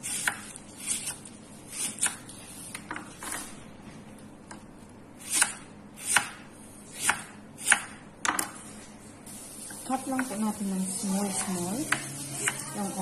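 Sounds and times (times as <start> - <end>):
knife cutting onion on board: 0.0 - 2.3, 5.2 - 8.0.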